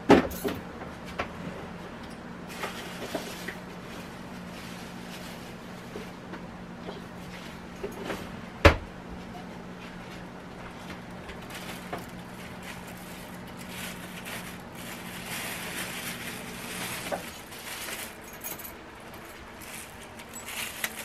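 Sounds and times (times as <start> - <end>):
low steady hum: 0.1 - 21.0
plastic gloves rustling: 2.5 - 6.0, 11.1 - 21.0.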